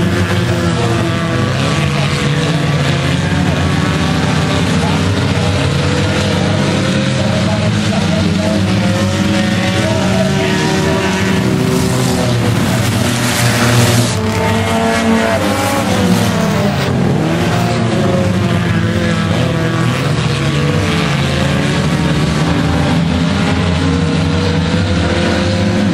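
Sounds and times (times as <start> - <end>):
racing car engines passing: 0.0 - 25.9.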